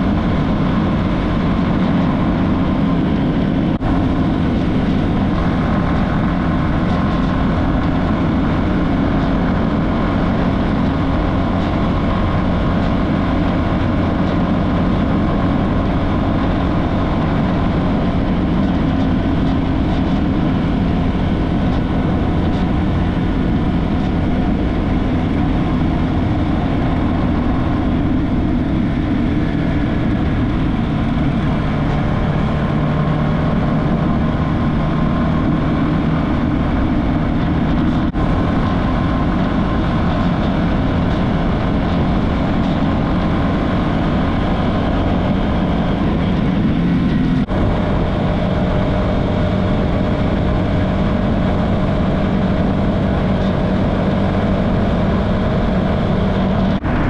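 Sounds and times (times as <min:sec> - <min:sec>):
motorcycle engine running: 0:00.0 - 0:57.0
road and wind noise: 0:00.0 - 0:57.0.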